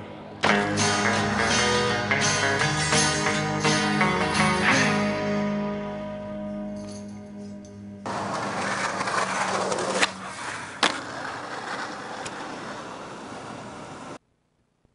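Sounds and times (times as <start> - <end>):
skateboard wheels rolling on concrete: 8.0 - 14.2
skateboard clacks: 8.1 - 14.2.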